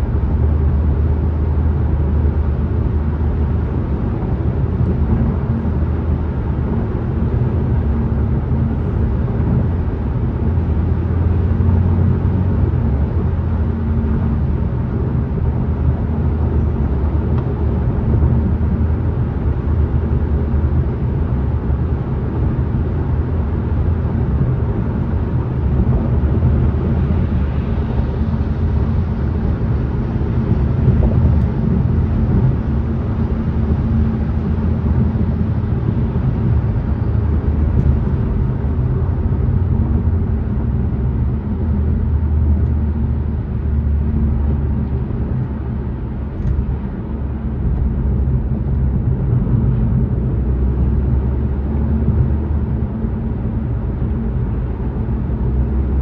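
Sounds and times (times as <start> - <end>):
car driving road rumble: 0.0 - 56.0.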